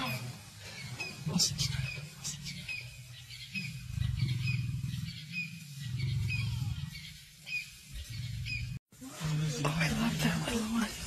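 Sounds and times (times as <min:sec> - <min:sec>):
bird chirping: 0:00.0 - 0:08.8
low rumble: 0:02.6 - 0:08.8.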